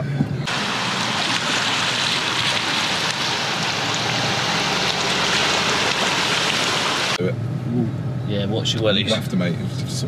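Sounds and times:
tyres rushing through water and mud: 0.5s - 7.2s.

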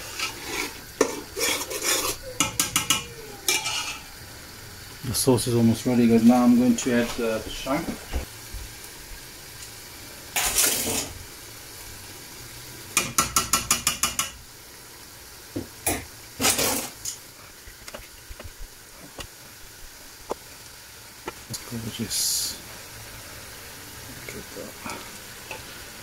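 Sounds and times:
scraping rustle: 0.0s - 2.2s
metal tongs clattering on pot: 1.0s - 4.1s, 13.0s - 14.4s.

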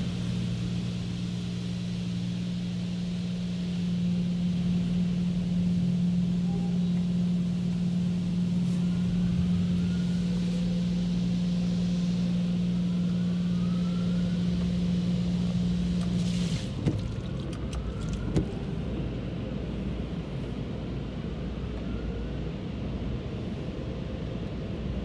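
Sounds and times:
car wash machine hum: 0.0s - 25.0s
water hissing over car: 15.9s - 18.2s.

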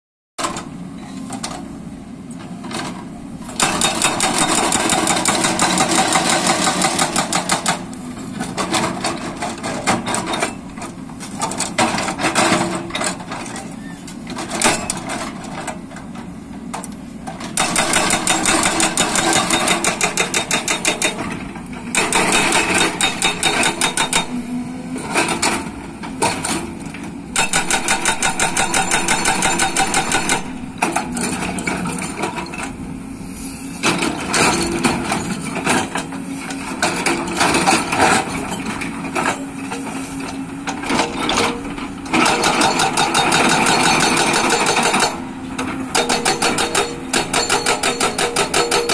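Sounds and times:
hydraulic breaker pounding rock: 3.4s - 10.5s, 17.3s - 24.4s, 25.0s - 32.6s, 40.6s - 48.9s.

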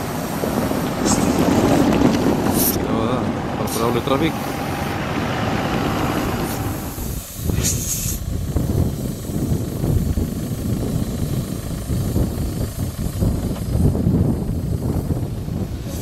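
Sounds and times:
pickup truck driving on gravel: 0.0s - 7.1s
wind buffeting microphone: 0.0s - 16.0s
brief hiss: 6.5s - 8.3s.

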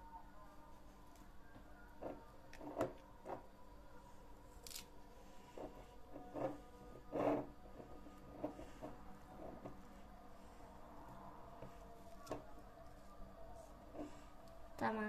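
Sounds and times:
faint steady hum: 0.0s - 15.0s
soft handling sounds: 0.6s - 14.9s.

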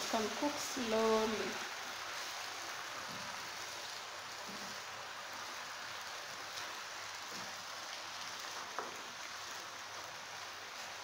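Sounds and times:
leaves sizzling in a frying pan: 0.0s - 11.0s.

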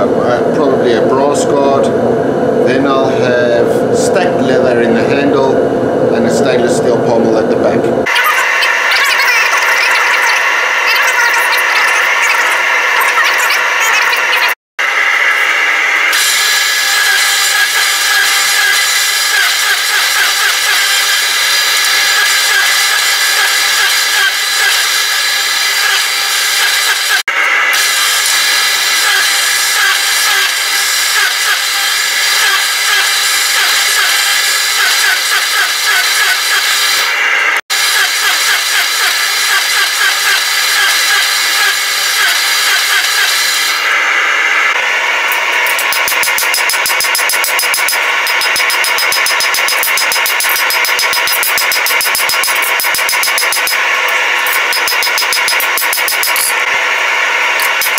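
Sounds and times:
forging press whirring and clattering: 15.5s - 27.2s, 27.8s - 44.0s, 45.2s - 57.9s.

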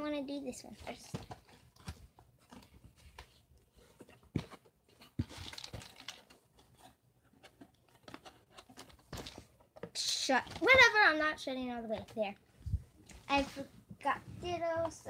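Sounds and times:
packaging rustling: 0.8s - 9.6s.

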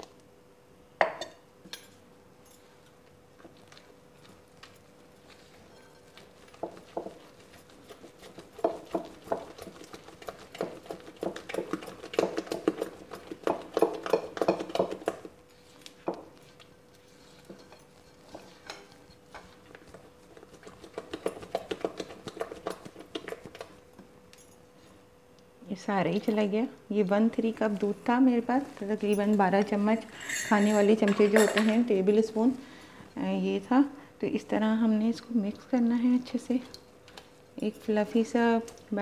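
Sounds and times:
faint steady hum: 0.0s - 39.0s
spatula stirring batter in glass bowl: 4.6s - 23.8s.

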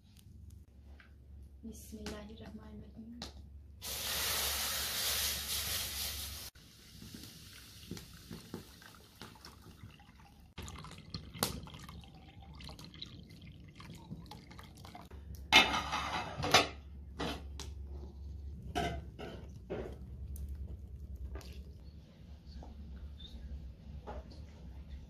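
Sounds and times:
milk pouring and splashing: 3.8s - 15.2s, 20.0s - 21.8s.

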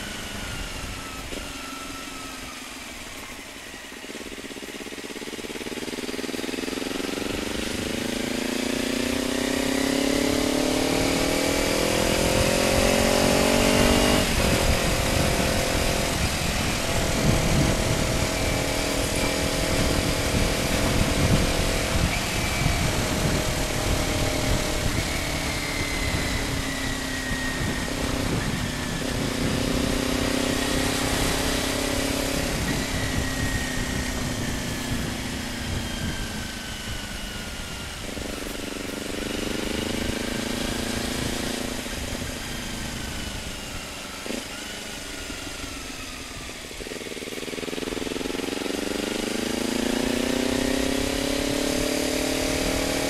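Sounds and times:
motorcycle engine revving: 0.0s - 53.0s
wind rumbling on microphone: 7.1s - 44.4s.

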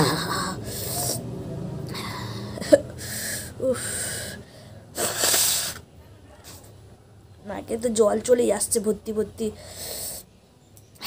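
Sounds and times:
woman sniffing and gasping: 1.9s - 5.8s.

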